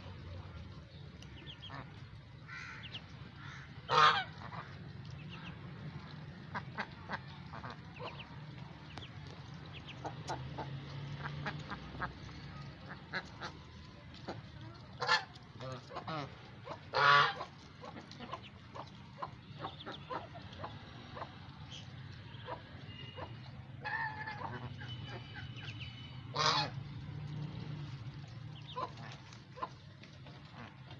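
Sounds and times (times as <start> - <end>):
geese soft clicks and calls: 0.0 - 30.9
geese honking: 1.5 - 5.6, 15.0 - 21.3, 22.3 - 27.4.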